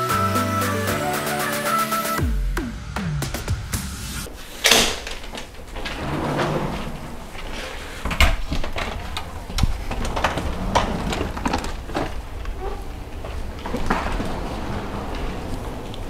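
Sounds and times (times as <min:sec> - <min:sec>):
door clicks and knocks: 0:04.6 - 0:12.1
rolling suitcase handled: 0:04.6 - 0:16.0.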